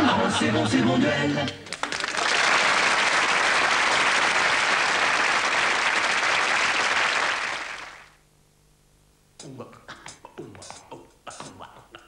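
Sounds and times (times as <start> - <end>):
audience applause: 1.6 - 8.2.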